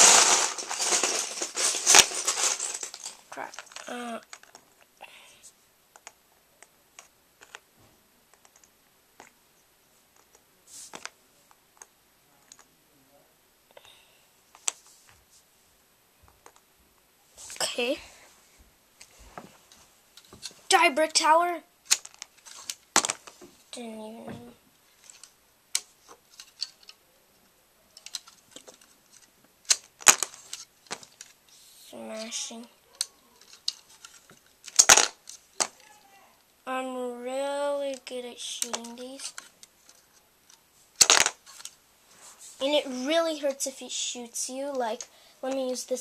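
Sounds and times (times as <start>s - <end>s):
plastic bricks clicking: 0.0s - 4.7s, 21.8s - 23.4s, 25.0s - 27.0s, 28.0s - 31.4s, 33.0s - 35.8s, 37.9s - 41.8s
sharp plastic clacks: 21.8s - 23.5s, 28.0s - 31.4s, 33.0s - 35.8s, 37.9s - 41.8s.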